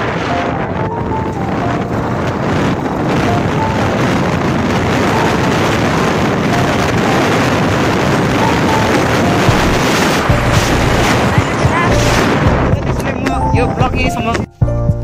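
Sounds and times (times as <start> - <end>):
road noise: 0.0 - 14.4
wind rushing over microphone: 0.0 - 14.5
motorcycle engine: 1.2 - 12.8.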